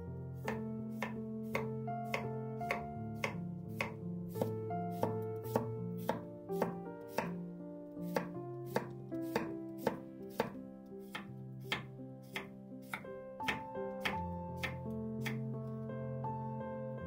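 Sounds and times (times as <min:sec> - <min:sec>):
soft background music: 0:00.0 - 0:17.0
knife slicing cucumber on board: 0:00.5 - 0:07.4, 0:08.1 - 0:15.4.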